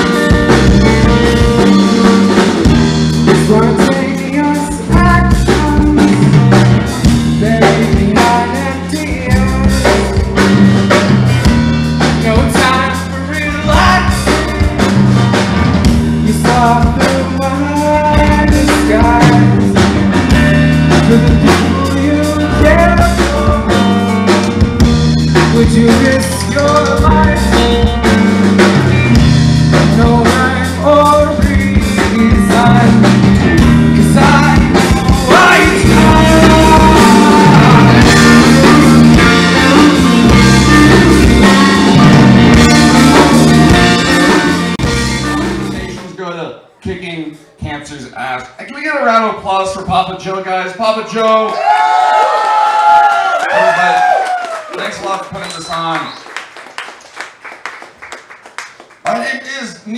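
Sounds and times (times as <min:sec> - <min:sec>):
electric guitar: 0:00.0 - 0:46.0
drum kit: 0:00.0 - 0:46.2
electric bass: 0:00.0 - 0:46.2.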